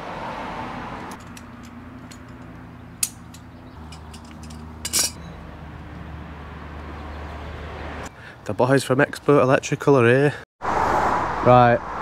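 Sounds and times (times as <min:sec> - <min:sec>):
hand tool clicks and taps: 0:01.1 - 0:05.2.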